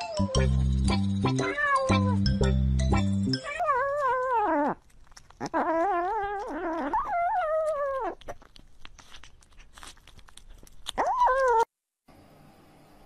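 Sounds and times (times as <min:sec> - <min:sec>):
faint chewing clicks: 0:03.6 - 0:11.6.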